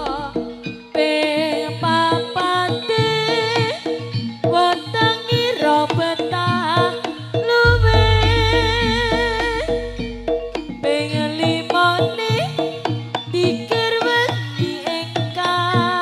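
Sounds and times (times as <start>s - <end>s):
deep sustained low tone: 7.7s - 11.2s
wavering pitch-bending melody: 7.7s - 11.2s
hand drum strokes: 7.7s - 11.6s.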